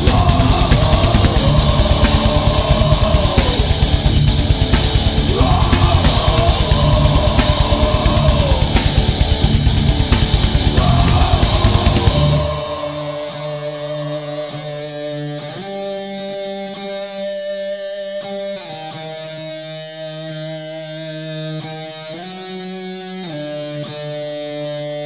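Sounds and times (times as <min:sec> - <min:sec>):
fast drums: 0:00.0 - 0:13.7
distorted electric guitars: 0:00.0 - 0:25.0.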